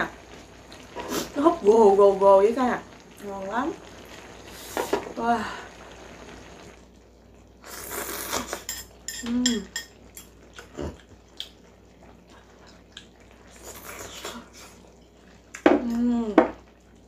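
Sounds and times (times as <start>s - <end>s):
person slurping: 0.7s - 1.4s, 7.6s - 8.7s, 10.6s - 11.1s.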